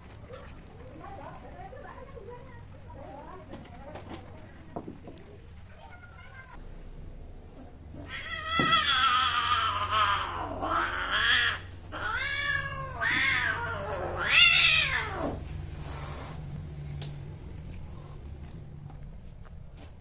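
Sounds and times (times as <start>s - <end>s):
cat yowling: 8.0s - 15.4s.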